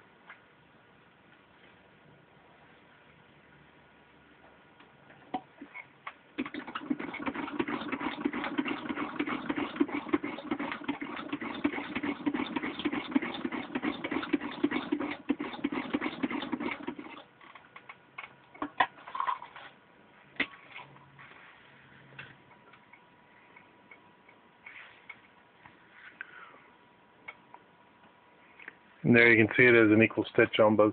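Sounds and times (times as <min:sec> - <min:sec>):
sewing machine clicking: 0:06.4 - 0:17.3.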